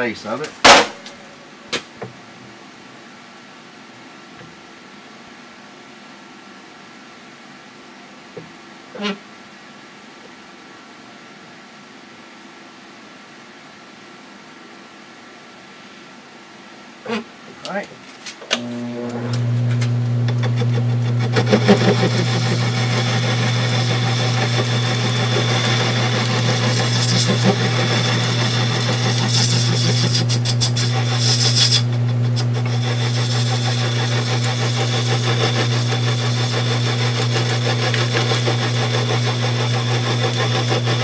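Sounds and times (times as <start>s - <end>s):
cutter cutting metal: 18.6s - 41.0s
lathe motor hum: 18.6s - 41.0s.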